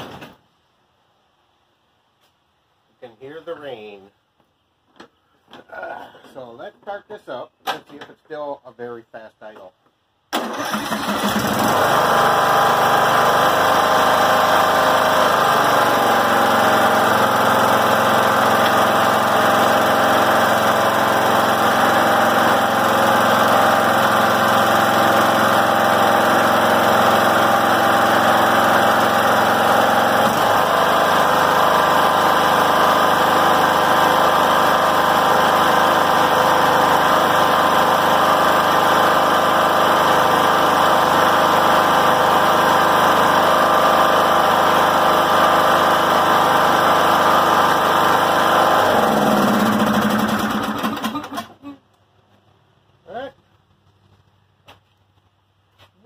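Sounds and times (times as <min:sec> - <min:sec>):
riding mower engine running: 0:10.4 - 0:51.6.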